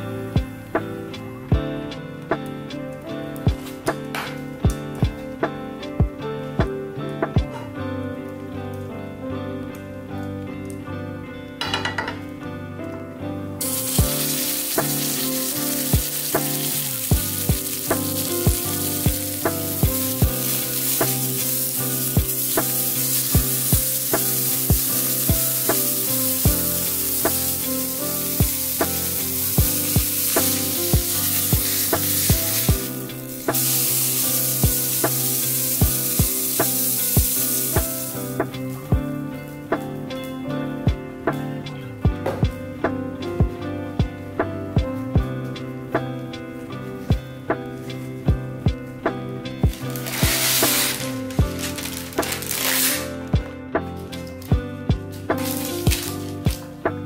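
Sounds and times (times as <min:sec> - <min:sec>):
soft plucked guitar music: 0:00.0 - 0:57.0
meat sizzling in a frying pan: 0:13.6 - 0:38.9, 0:49.7 - 0:53.0, 0:55.3 - 0:56.8.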